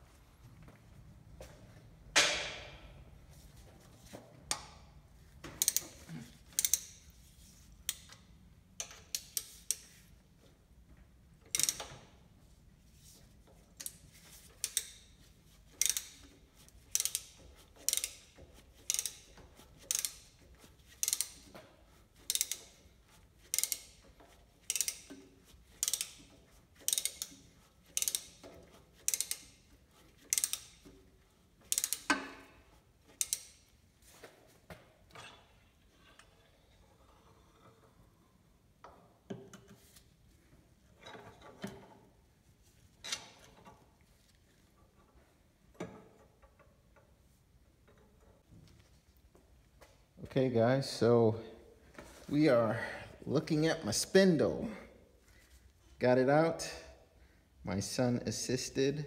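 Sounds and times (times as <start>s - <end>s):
ratchet wrench clicking: 5.6s - 7.1s, 8.8s - 9.9s, 11.5s - 11.9s, 13.8s - 15.1s, 15.7s - 21.5s, 22.2s - 22.8s, 23.4s - 25.2s, 25.8s - 29.6s, 30.2s - 30.9s, 31.6s - 32.2s, 33.1s - 33.6s.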